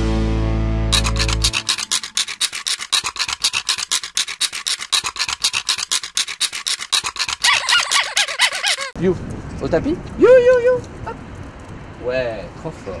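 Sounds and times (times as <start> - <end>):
pen scratching on paper: 0.9 - 9.0.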